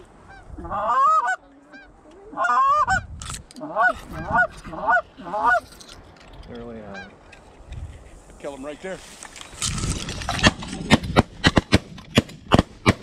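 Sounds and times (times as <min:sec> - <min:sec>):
geese honking: 0:00.2 - 0:05.7.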